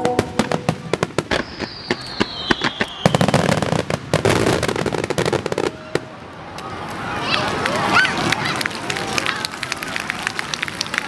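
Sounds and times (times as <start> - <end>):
fireworks bursting and crackling: 0.0 - 6.3
firework falling whistle: 1.3 - 4.0.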